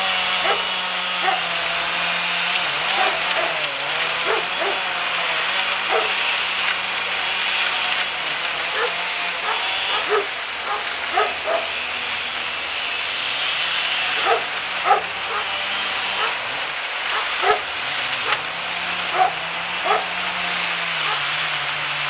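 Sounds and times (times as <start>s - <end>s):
machine engine running: 0.0s - 22.0s
dog barking: 0.4s - 1.5s, 2.9s - 3.6s, 4.2s - 4.8s, 5.8s - 6.2s, 8.7s - 11.7s, 14.2s - 15.6s, 16.2s - 16.4s, 17.1s - 18.4s, 19.1s - 20.2s, 21.0s - 21.2s.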